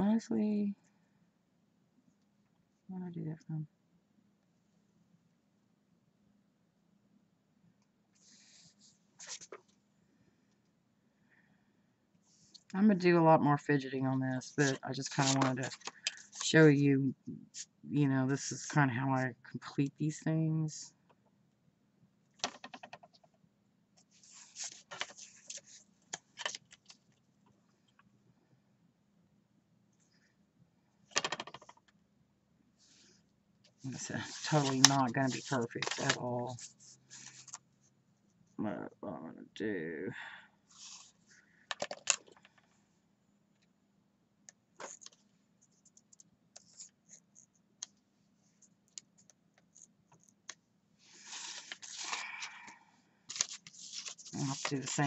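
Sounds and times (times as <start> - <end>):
paper rustling and crinkling: 9.2 - 9.6, 14.5 - 16.5, 24.2 - 27.0, 33.9 - 37.6, 51.1 - 52.6, 53.3 - 55.0
paper clicks: 34.3 - 36.2, 53.3 - 55.0.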